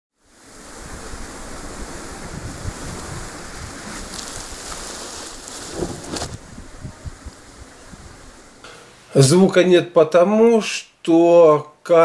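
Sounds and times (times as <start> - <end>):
muffled rushing noise: 0.6 - 8.6.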